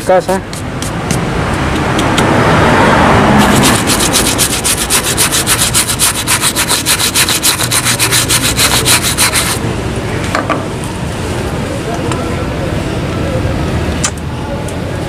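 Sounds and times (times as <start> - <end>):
brush scrubbing suede: 3.4 - 9.6.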